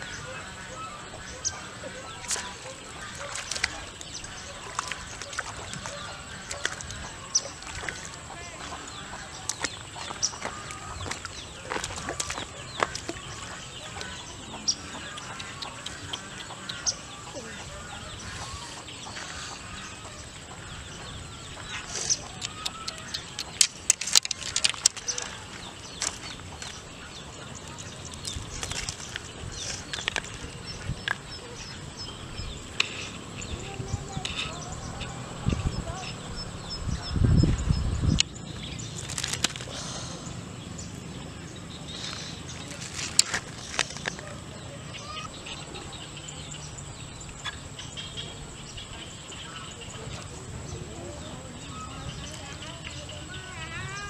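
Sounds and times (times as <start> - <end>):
outdoor background noise: 0.0 - 54.0
fish splashing in water: 1.6 - 13.6
fish thrashing in bamboo basket: 23.5 - 26.7, 38.9 - 39.7.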